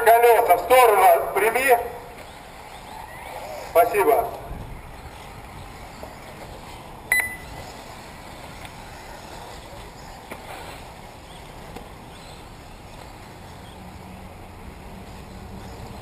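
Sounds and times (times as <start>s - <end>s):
faint background noise: 0.0s - 16.0s
short electronic beep: 7.1s - 7.6s.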